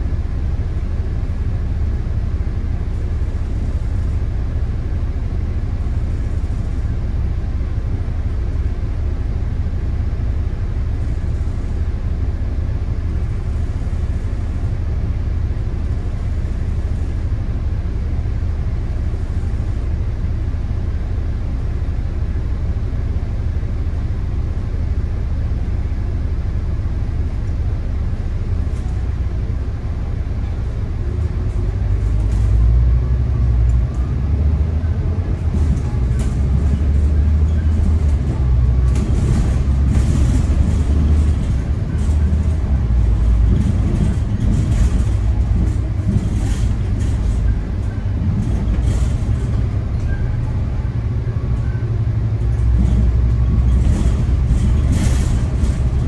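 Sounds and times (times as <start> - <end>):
bus diesel engine idling: 0.0 - 56.0.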